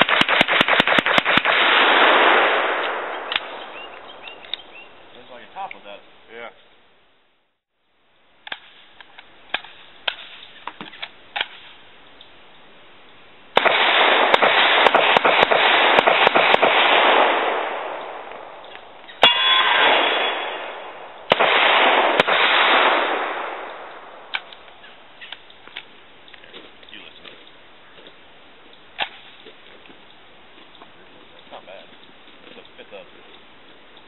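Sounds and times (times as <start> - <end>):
rapid gunshots: 0.0 - 3.4, 13.6 - 17.8, 19.7 - 23.6
single loud gunshot: 19.2 - 23.7.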